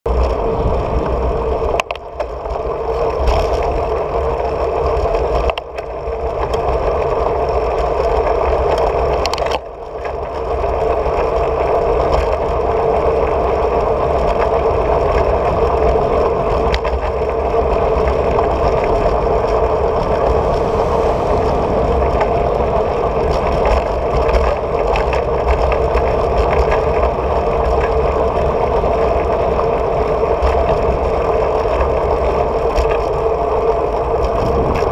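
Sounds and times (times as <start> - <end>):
bicycle tyres on asphalt: 0.1 - 34.9
wind rushing: 17.4 - 25.7.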